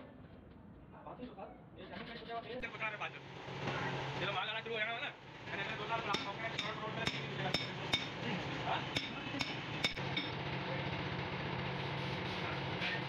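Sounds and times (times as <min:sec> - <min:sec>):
low hum of machinery: 0:02.6 - 0:13.0
sharp metallic taps: 0:06.0 - 0:08.2, 0:08.9 - 0:10.4.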